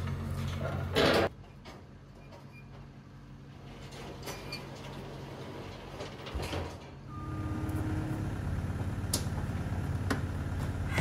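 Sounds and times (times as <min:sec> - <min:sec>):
metal clanks and scrapes: 0:00.0 - 0:02.9, 0:03.5 - 0:07.0
diesel engine running: 0:07.0 - 0:11.0
steady high tone: 0:07.1 - 0:08.6.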